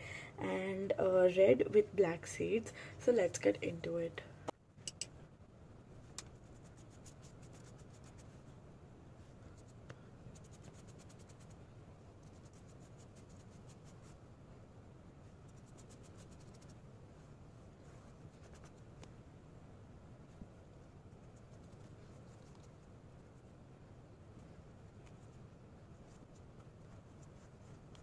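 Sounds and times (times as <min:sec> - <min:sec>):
low room hum: 0:00.0 - 0:28.0
paintbrush scratching on paper: 0:06.3 - 0:08.5, 0:09.2 - 0:11.6, 0:12.2 - 0:14.2, 0:15.3 - 0:16.8, 0:17.8 - 0:18.9, 0:21.2 - 0:22.8, 0:25.0 - 0:28.0.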